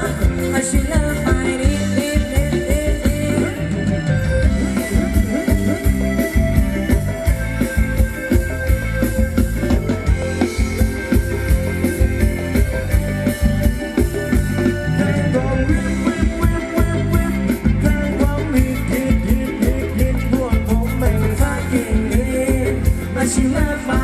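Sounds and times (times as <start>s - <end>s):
live band dance music: 0.0s - 24.0s.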